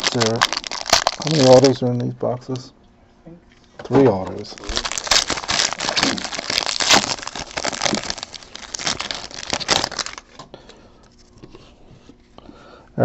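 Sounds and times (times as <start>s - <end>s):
foil wrapper crinkling and tearing: 0.0s - 1.8s, 4.4s - 10.4s.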